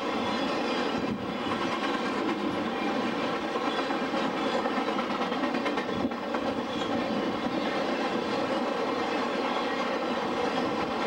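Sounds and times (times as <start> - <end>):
freight train rolling past: 0.0 - 11.0.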